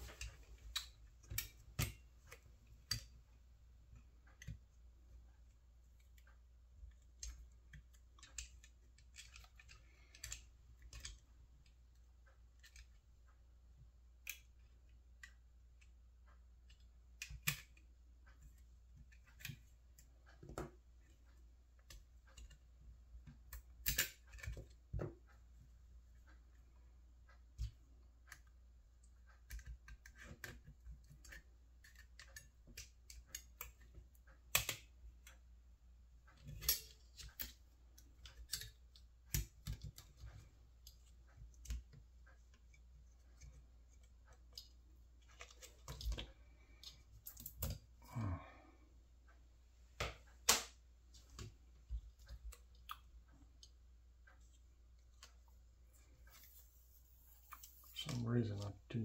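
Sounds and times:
faint low hum: 0.0 - 50.0
light clicks of small parts: 0.0 - 59.0.

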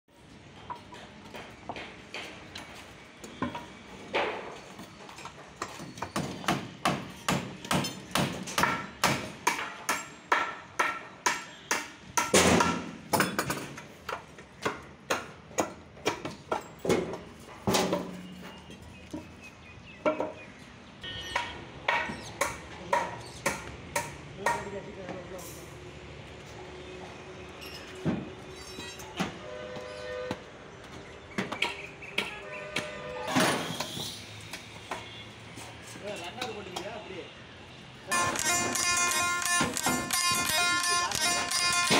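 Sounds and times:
hammer nailing timber: 5.8 - 13.3.

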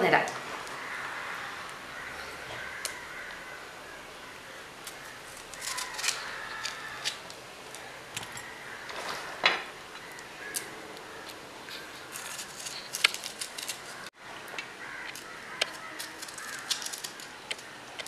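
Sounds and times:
chilli pods snapping: 2.6 - 3.4, 4.8 - 8.5, 10.0 - 18.0.

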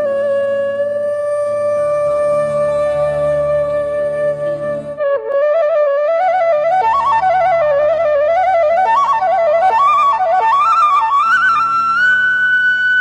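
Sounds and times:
bamboo flute melody: 0.0 - 13.0
low sustained drone: 0.1 - 5.0.

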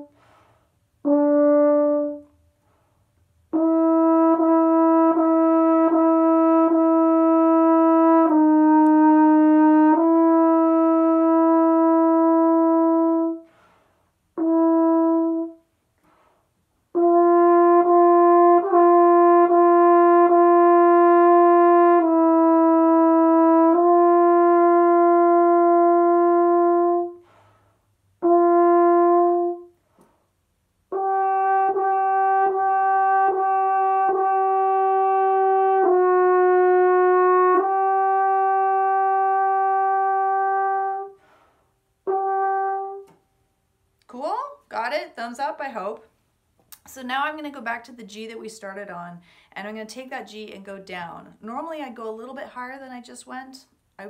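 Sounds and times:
french horn playing long tones: 0.0 - 2.8, 3.5 - 43.2.

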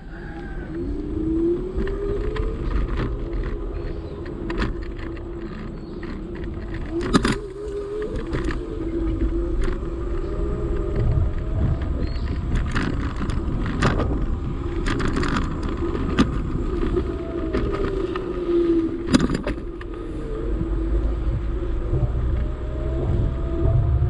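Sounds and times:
low rumble: 0.0 - 24.0
small vehicle engine running: 0.0 - 24.0
sharp clicks and rattles: 0.3 - 20.8.

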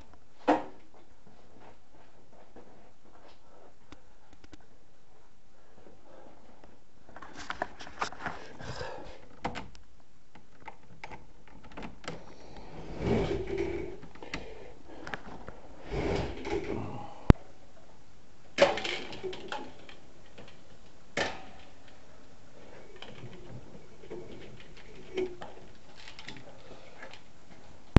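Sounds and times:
wire handling clicks and rustles: 9.2 - 12.6, 18.6 - 27.9.

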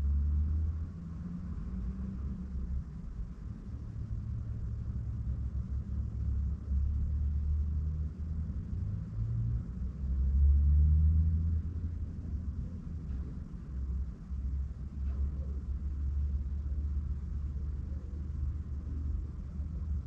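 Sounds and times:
car rumble from inside cabin: 0.0 - 20.0.

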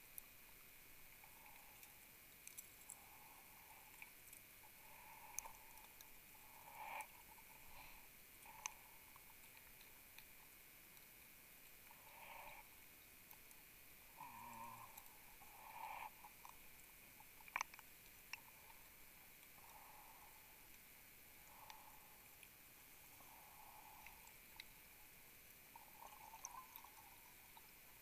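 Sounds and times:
small clicks: 17.4 - 18.4.

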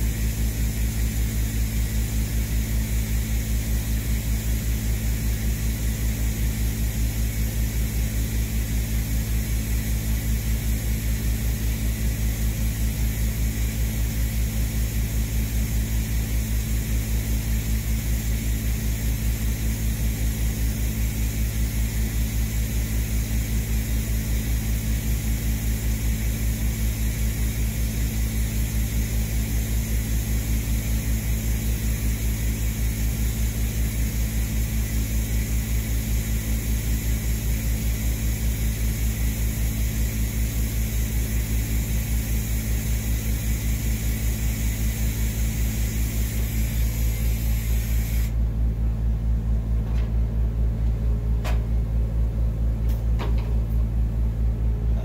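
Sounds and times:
welding arc hissing: 0.0 - 48.4
low pulsing hum: 0.0 - 55.0.

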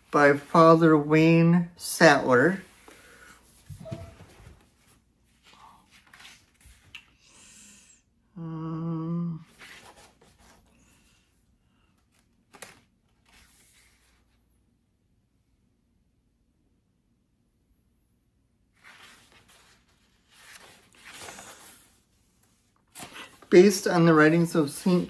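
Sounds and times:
book pages turning: 3.6 - 7.0, 9.5 - 10.8, 12.0 - 14.2, 18.8 - 24.3
person humming: 8.3 - 9.5.

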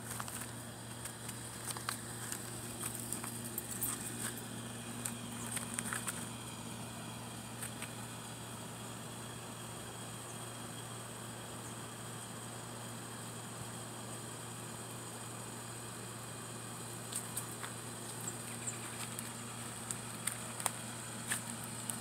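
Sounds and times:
crackling and rustling in dry leaves: 0.0 - 4.4
steady low hum: 0.0 - 22.0.

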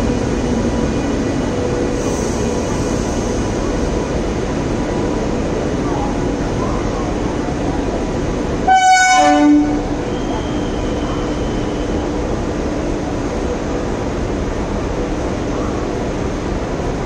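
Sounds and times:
passenger coaches rolling: 0.0 - 17.0
train horn blast: 8.6 - 10.5.

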